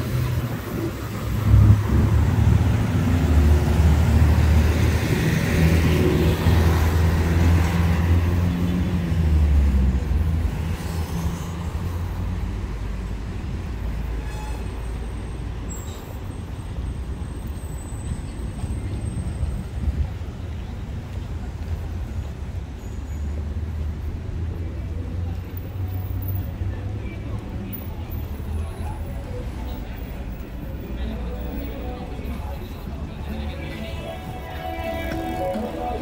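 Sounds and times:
street traffic noise: 0.0 - 36.0
vehicle engine humming: 28.8 - 36.0.

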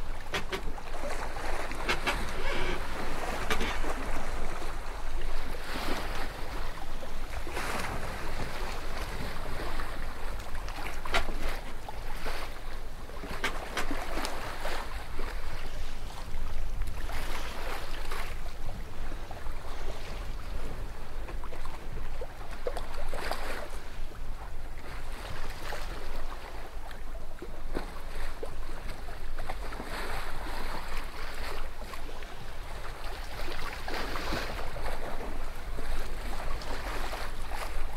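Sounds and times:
wind noise on microphone: 0.0 - 6.2
water splashing and sloshing: 0.0 - 37.9.

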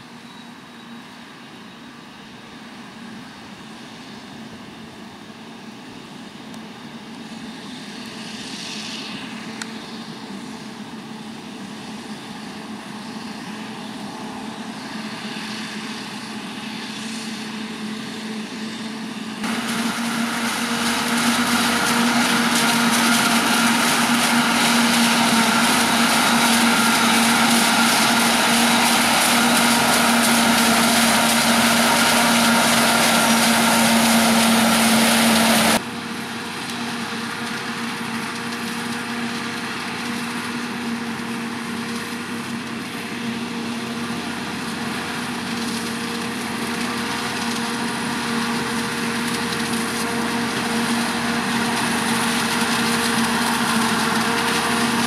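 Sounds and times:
heavy machine drone with whine: 0.0 - 55.0
tractor engine: 2.8 - 55.0
stalks crunching in chopper: 19.4 - 35.8.

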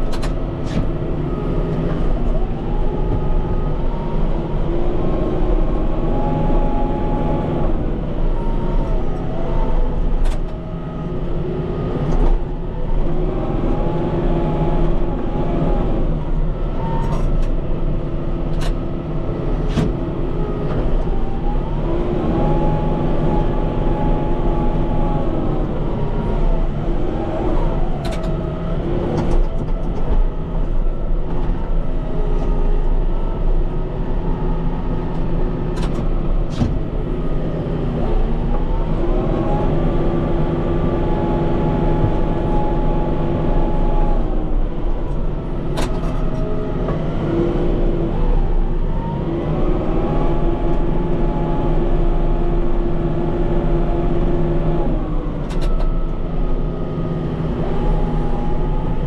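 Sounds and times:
tractor diesel engine revving: 18.2 - 59.0.

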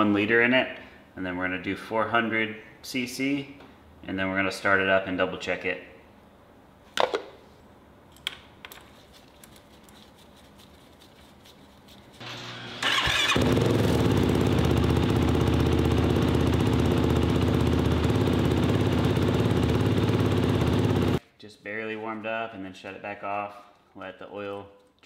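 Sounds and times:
engine starter cranking: 12.2 - 14.2
engine idling: 12.2 - 21.2.

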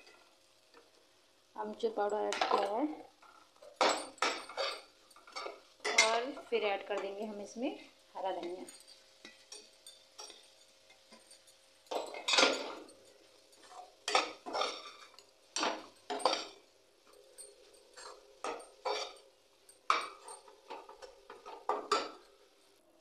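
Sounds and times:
spatula scraping a pan: 8.4 - 16.6, 17.9 - 19.2.

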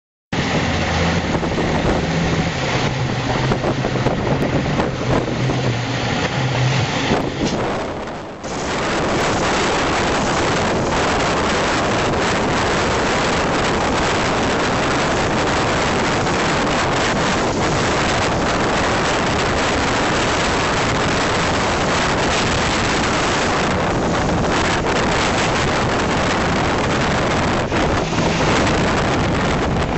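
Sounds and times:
water rushing past hull: 0.4 - 29.9
wind buffeting microphone: 0.4 - 29.9.

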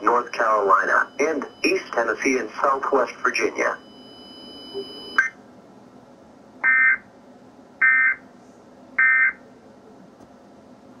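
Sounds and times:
buzzing data tone bursts: 0.1 - 3.0, 3.7 - 5.4, 6.6 - 7.0.

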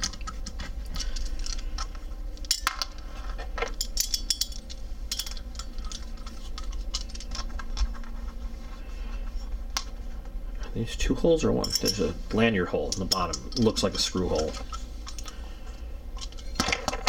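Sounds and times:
metallic clicks and clinks: 11.6 - 12.2.

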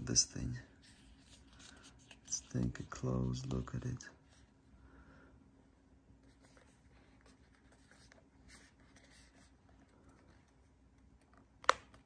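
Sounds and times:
handling scratches and rubs: 0.7 - 4.5.

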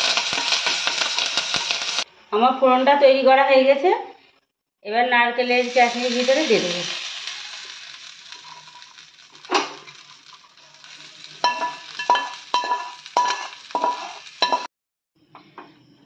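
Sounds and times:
hot oil sizzling: 0.0 - 2.1, 5.4 - 14.7
steel spoon scraping metal pan: 7.1 - 14.7.

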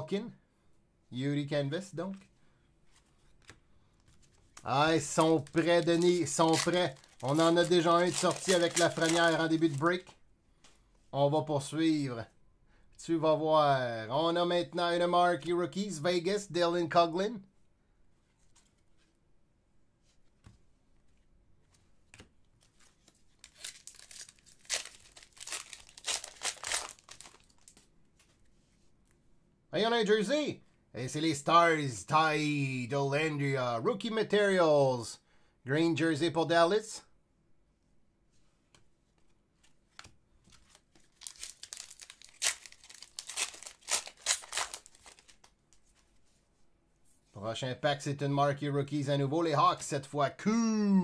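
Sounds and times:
wrapper crinkling and tearing: 4.6 - 10.0, 23.0 - 27.8, 40.6 - 45.5.

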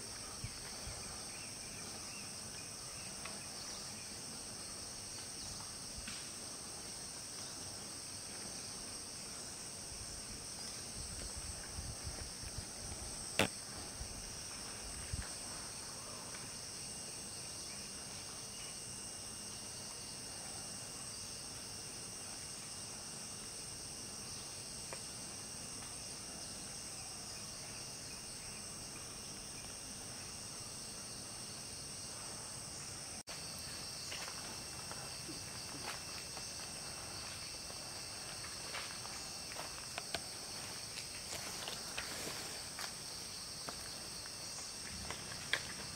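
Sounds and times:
insects droning: 0.0 - 45.9
small crackles: 44.6 - 45.9.

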